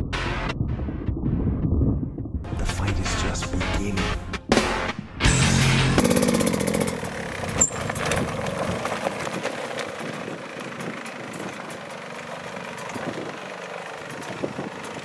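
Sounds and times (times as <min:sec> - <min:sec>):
dirt bike engine revving: 0:05.4 - 0:15.0.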